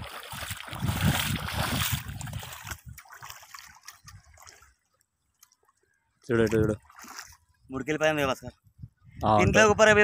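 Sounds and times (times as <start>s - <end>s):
fish thrashing and splashing water: 0.0s - 5.6s, 6.7s - 7.5s.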